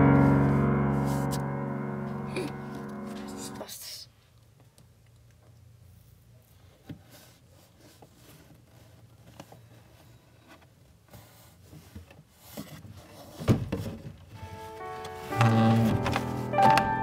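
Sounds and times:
cloth rubbing: 0:14.4 - 0:16.5.

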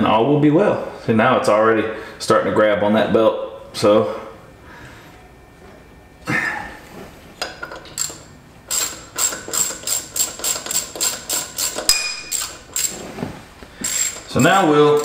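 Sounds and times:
hand ratchet clicking: 0:07.9 - 0:13.0, 0:13.8 - 0:15.0.

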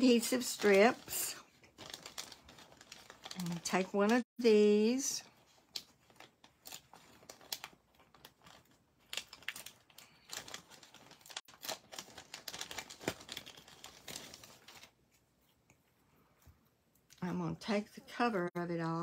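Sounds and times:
plastic bag crinkling: 0:00.0 - 0:04.3, 0:05.0 - 0:15.0.

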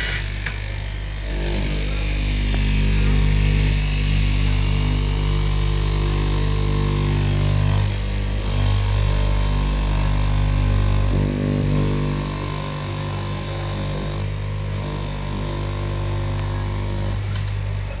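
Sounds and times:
cloth cutting machine motor hum: 0:00.0 - 0:18.0.

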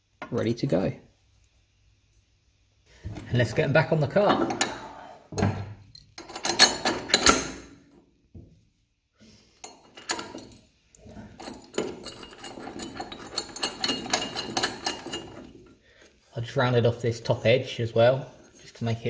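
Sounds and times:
metal brackets clinking on steel: 0:05.9 - 0:07.7, 0:09.6 - 0:15.7.

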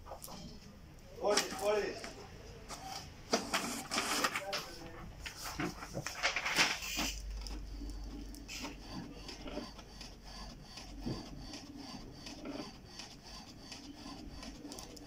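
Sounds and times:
paper sheets rustling: 0:03.3 - 0:07.6.

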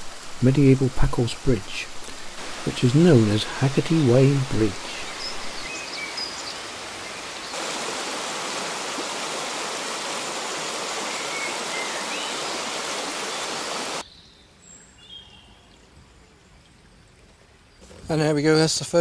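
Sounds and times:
stream rushing over stones: 0:00.0 - 0:14.0
high bird chirps: 0:11.0 - 0:13.6.

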